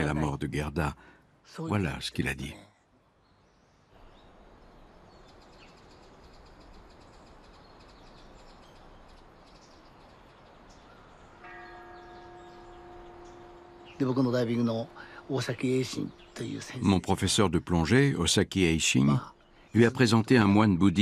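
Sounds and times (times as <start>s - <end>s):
faint high chirping: 3.1s - 21.0s
steady pitched tone: 12.3s - 18.1s.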